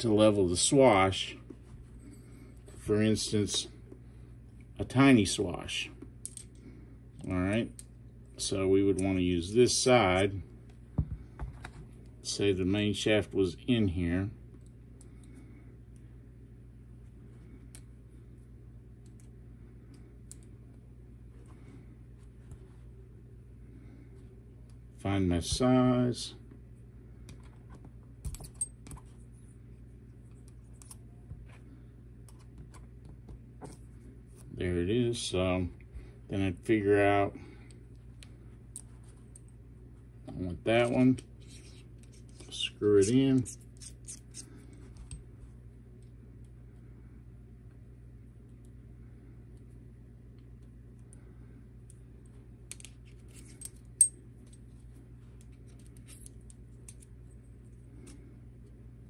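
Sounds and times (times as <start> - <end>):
low steady hum: 0.0 - 59.0
light clicks and taps of metal parts: 6.0 - 8.0, 51.8 - 58.8.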